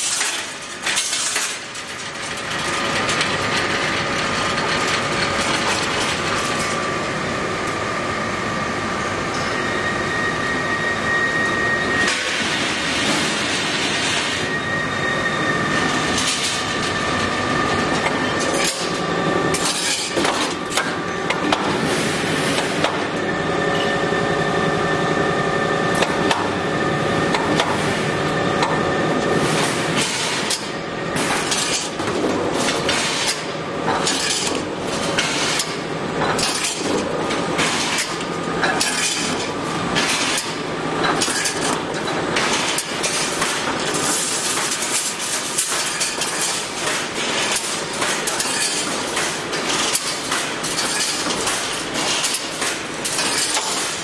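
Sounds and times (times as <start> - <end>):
steady machine noise: 0.0 - 54.0
metallic clanks and clinks: 49.7 - 53.9.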